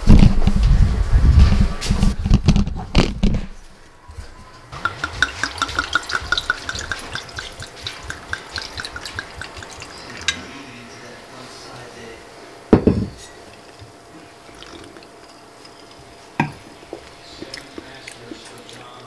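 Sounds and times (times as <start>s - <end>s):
wine glugging into glass: 4.8s - 10.6s.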